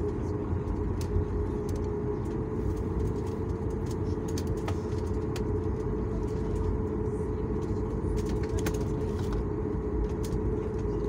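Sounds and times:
jet engines low rumble: 0.0 - 11.0.

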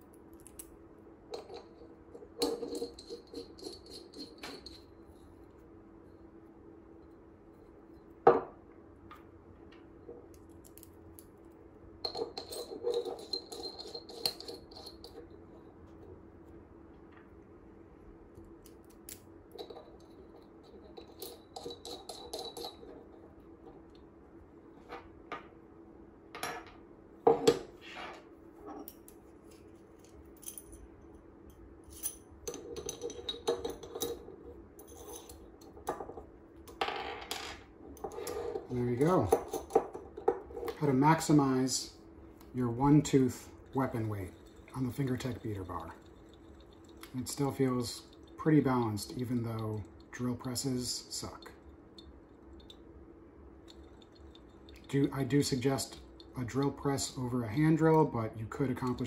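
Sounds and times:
metal parts clinking on wooden desk: 1.4 - 4.9, 26.4 - 29.2, 31.9 - 41.0.

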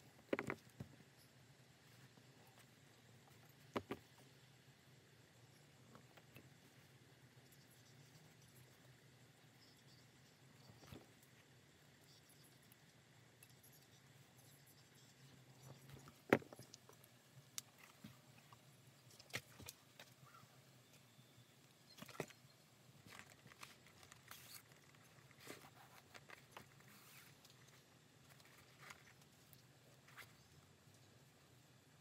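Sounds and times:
fabric and thread rustling: 22.0 - 31.1.

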